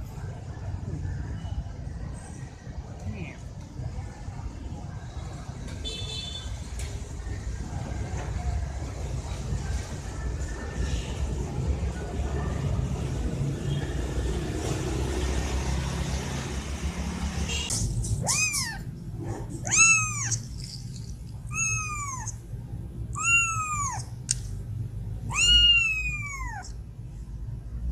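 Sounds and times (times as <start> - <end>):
kitten meowing: 18.2 - 18.9, 19.6 - 20.5, 21.5 - 22.4, 23.1 - 24.1, 25.2 - 26.8.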